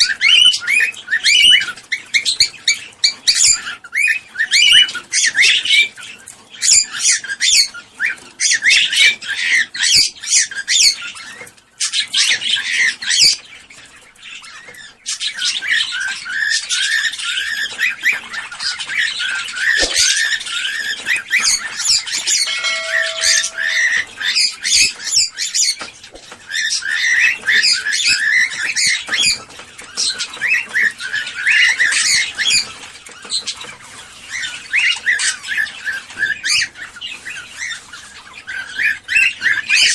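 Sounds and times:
cockatiels chattering and squawking: 0:00.0 - 0:39.9
short steady tone: 0:22.4 - 0:24.1.

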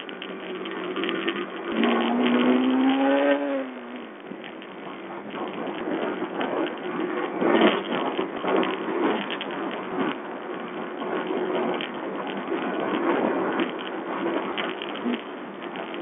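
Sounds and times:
motorcycle engine running: 0:00.0 - 0:05.0.

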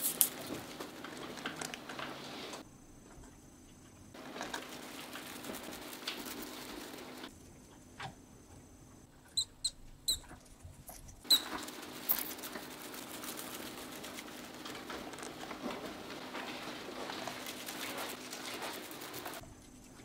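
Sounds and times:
mouse scurrying through straw: 0:00.0 - 0:01.1, 0:04.2 - 0:07.3, 0:11.2 - 0:19.4
mice squeaking: 0:09.2 - 0:14.4.

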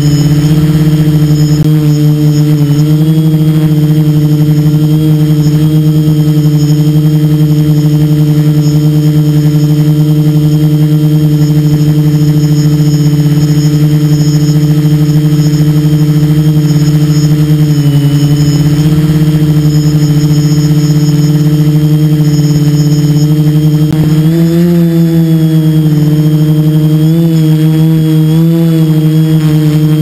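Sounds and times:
quadcopter propellers humming: 0:00.0 - 0:30.0.

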